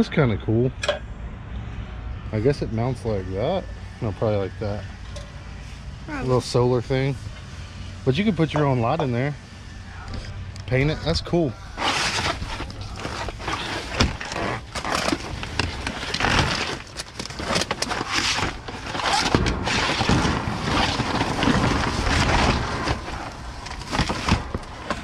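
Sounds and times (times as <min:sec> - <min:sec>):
objects rustling and clattering: 0:11.8 - 0:25.0.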